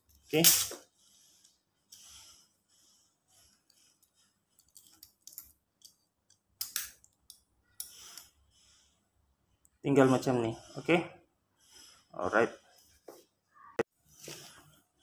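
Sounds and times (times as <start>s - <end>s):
hands handling fishing line: 3.3s - 8.4s.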